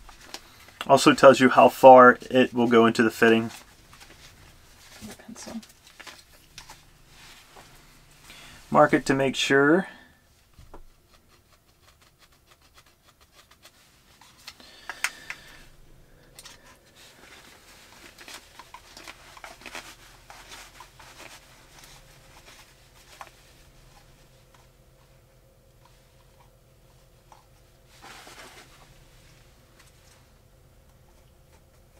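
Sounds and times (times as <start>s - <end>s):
tool scratching on plastic pipe: 10.8s - 13.9s.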